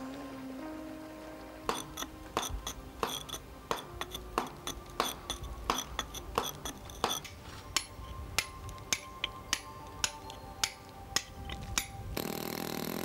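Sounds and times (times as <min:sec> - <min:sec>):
hammer striking chisel on stone: 0:01.7 - 0:12.0.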